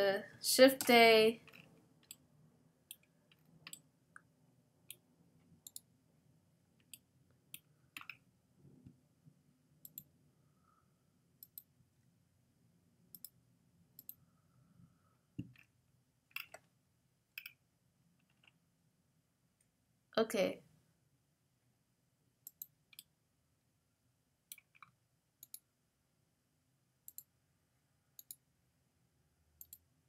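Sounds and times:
computer mouse and keyboard clicks: 7.6s - 8.2s.

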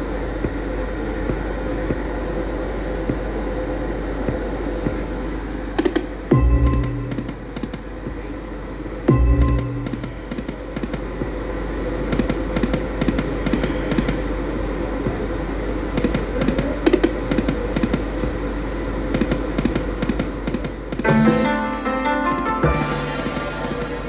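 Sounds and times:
machine chiming jingle: 21.0s - 24.0s.

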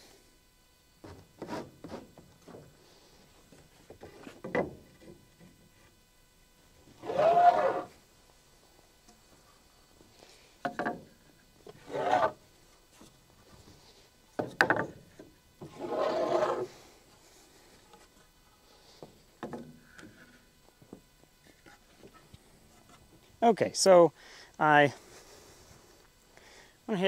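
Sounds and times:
boards scraping against wood: 1.0s - 3.0s, 11.7s - 15.0s, 15.6s - 17.2s.

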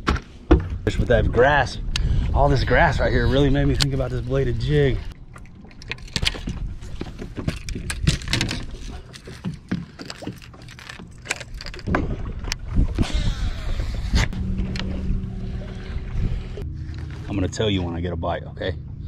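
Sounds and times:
steady low rumble: 0.8s - 8.4s, 11.1s - 19.0s
fishing rod and reel clicking: 5.6s - 11.9s.

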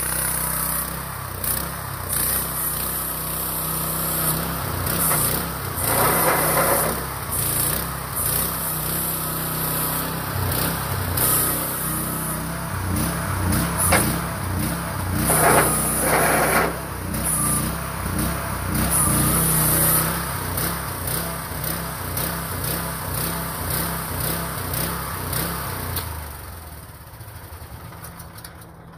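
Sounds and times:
mini excavator engine under load: 0.0s - 28.9s.

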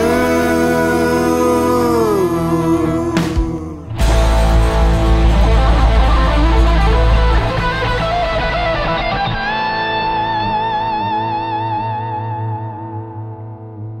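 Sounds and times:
heavy bass: 0.0s - 14.0s
rock music with electric guitar: 0.0s - 14.0s.

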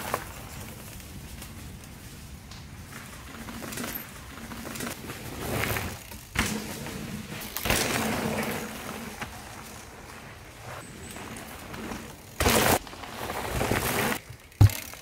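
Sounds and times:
bike tyres on dirt trail: 0.0s - 15.0s.

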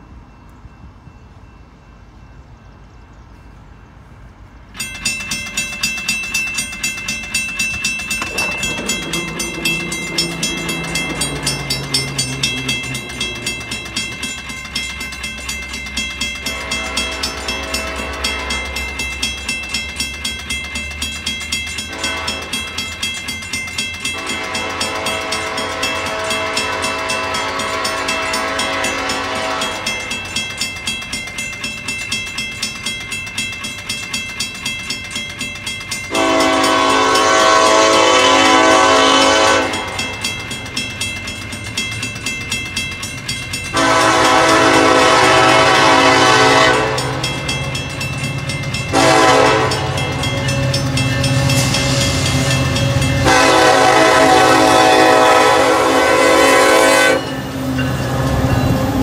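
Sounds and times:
crossing bell ringing rapidly: 0.0s - 59.0s
train horn blasts: 16.4s - 19.0s, 21.8s - 22.7s, 24.1s - 30.1s, 36.1s - 40.1s, 43.7s - 47.4s, 48.9s - 57.4s.

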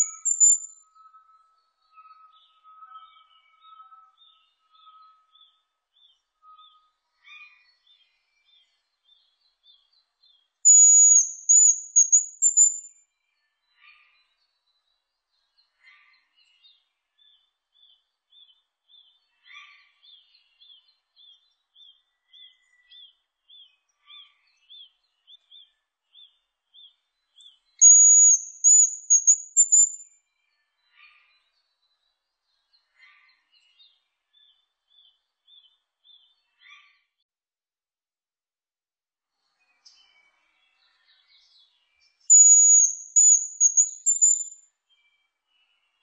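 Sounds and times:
high bird whistle and twitter: 0.0s - 5.3s, 10.7s - 13.0s, 27.4s - 30.1s, 42.1s - 44.6s.

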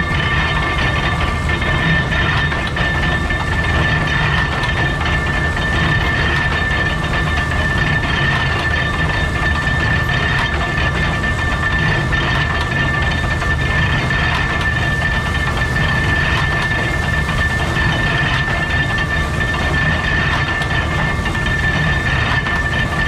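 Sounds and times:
baler mechanical clatter: 0.0s - 23.0s
high mechanical whine: 0.0s - 23.0s.

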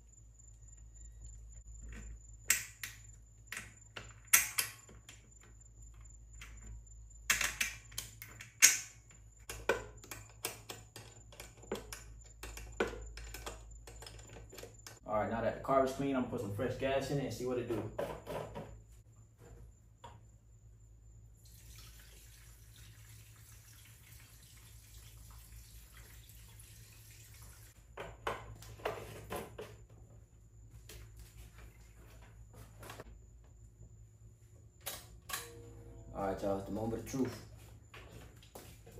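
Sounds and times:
sharp knocks and clatters: 17.6s - 18.8s
gasoline trickling into tank: 21.4s - 27.9s.

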